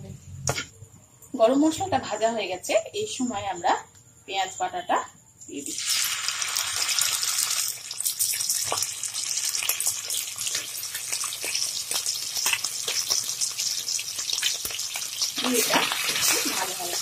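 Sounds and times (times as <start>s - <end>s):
onion paste sizzling in oil: 5.5s - 17.0s
crackles and pops of frying: 5.6s - 17.0s.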